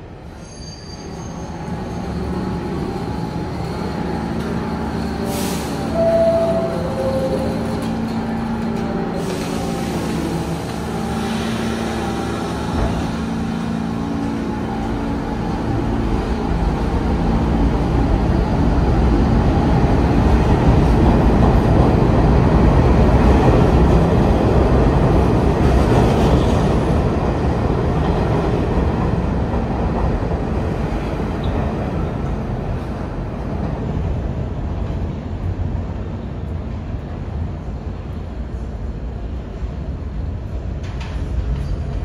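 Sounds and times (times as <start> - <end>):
train wheels rumbling on rail: 0.0 - 42.0.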